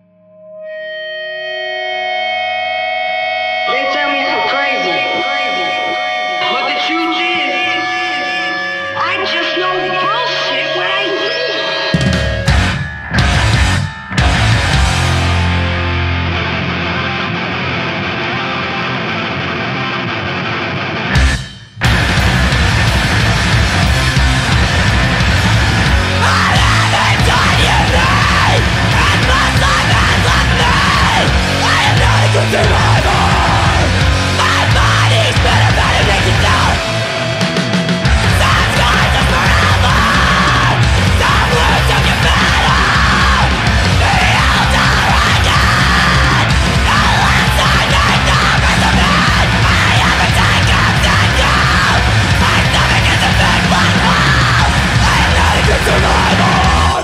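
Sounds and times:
heavy rock music with yelled vocals: 0.6s - 57.0s
heavy bass: 11.6s - 20.0s, 20.8s - 57.0s.

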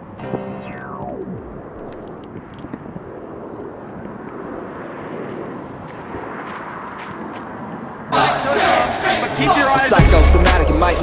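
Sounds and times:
music sliding down in pitch: 0.0s - 2.0s
rushing outdoor background noise: 0.0s - 10.0s.

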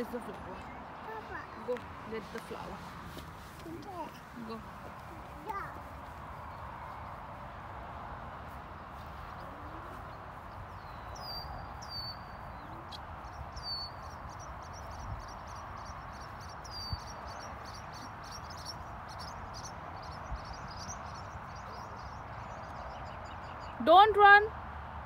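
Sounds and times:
outdoor background noise: 0.0s - 25.0s
quick repeated bird chirps: 9.3s - 23.8s.

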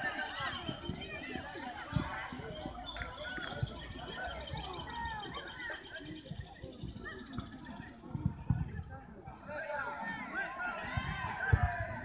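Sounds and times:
players and spectators shouting: 0.0s - 5.9s, 9.4s - 12.0s.

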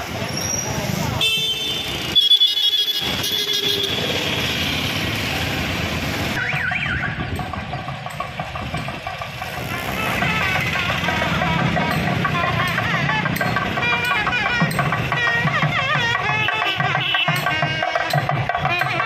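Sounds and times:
crowd din: 3.8s - 19.0s.

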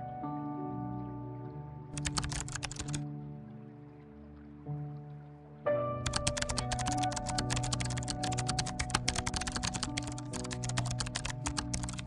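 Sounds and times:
background music with held notes: 0.0s - 12.0s
rapid keyboard typing clicks: 2.0s - 3.0s, 6.0s - 12.0s.

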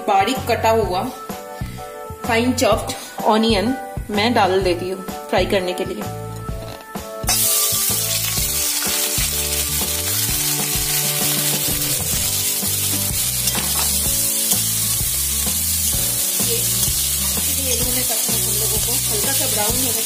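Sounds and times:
onions sizzling in hot oil: 7.3s - 20.0s
spoon stirring: 8.2s - 19.5s.

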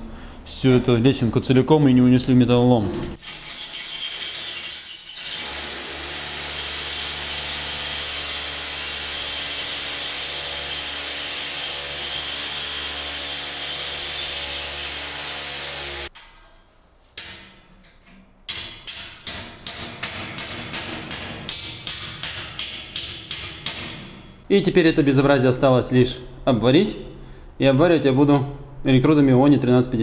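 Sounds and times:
electric drill boring into concrete: 5.2s - 16.1s
hammer striking metal: 18.5s - 24.3s.

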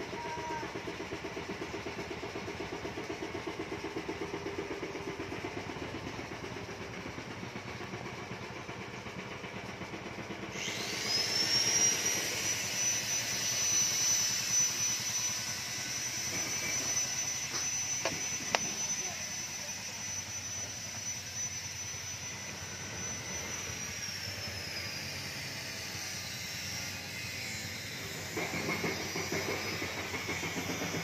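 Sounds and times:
engine running with fast pulse: 0.0s - 31.0s
power tool motor whining: 10.5s - 31.0s.

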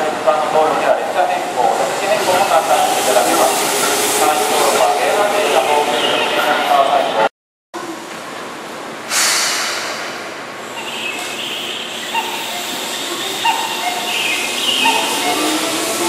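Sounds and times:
electric train rushing past: 0.0s - 7.3s, 9.0s - 16.0s
train wheels and brakes squealing: 1.6s - 6.8s, 9.1s - 16.0s.

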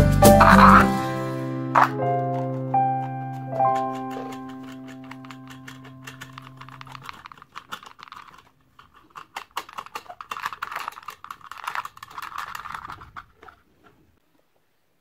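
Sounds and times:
nut spinning on threaded rod: 3.6s - 14.0s.

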